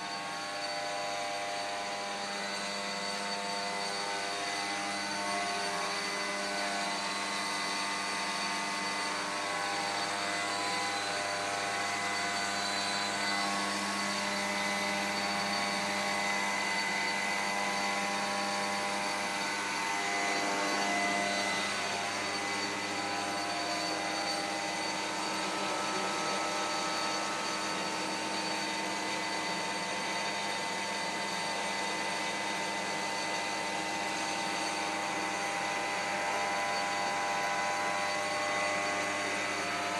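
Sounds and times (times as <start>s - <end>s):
electric blower whining: 0.0s - 39.9s.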